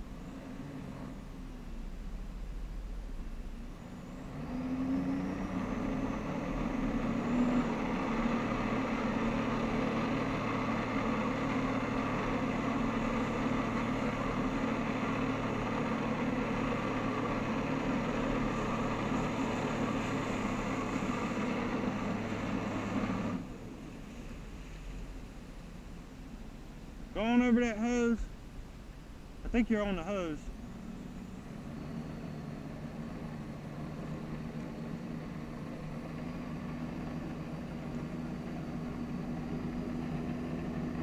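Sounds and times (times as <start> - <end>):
jet ski engine revving: 29.9 - 41.0.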